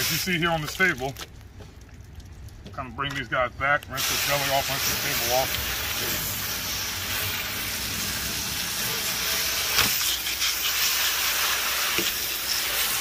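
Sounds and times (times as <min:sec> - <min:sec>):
hose nozzle spraying water: 0:00.0 - 0:01.2, 0:03.9 - 0:13.0.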